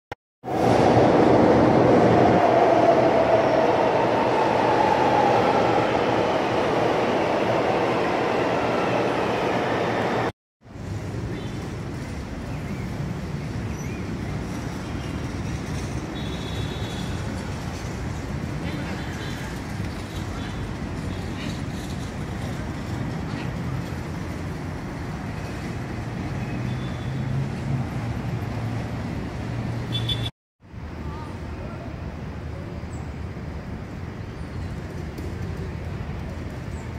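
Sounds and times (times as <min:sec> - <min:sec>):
metro train rumbling: 0:00.4 - 0:29.8
cars passing: 0:00.4 - 0:30.3.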